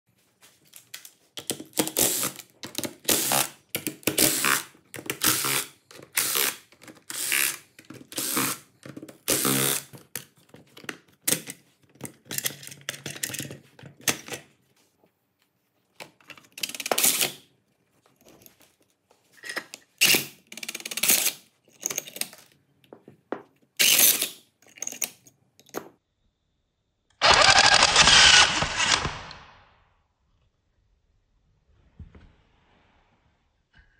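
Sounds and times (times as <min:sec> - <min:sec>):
rebar tying tool whirring: 0:05.2 - 0:08.6, 0:23.8 - 0:24.4, 0:27.1 - 0:29.5.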